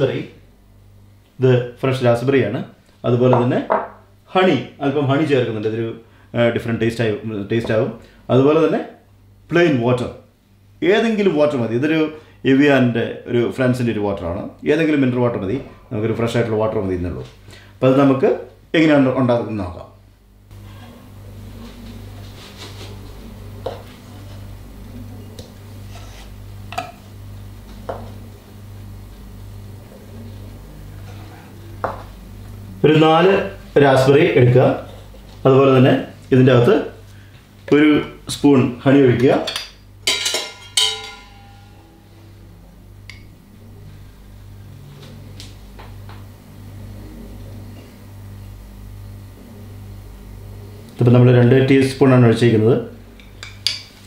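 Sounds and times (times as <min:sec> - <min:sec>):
low electrical hum: 0:00.0 - 0:54.0
metal cocktail shaker clinking: 0:39.5 - 0:41.7.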